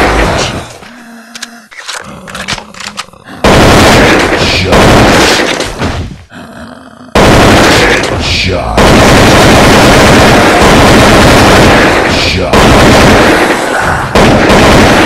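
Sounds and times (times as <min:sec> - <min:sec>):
sharp clicks: 0:01.3 - 0:03.3
gunfire bursts: 0:03.4 - 0:06.1, 0:07.2 - 0:15.0.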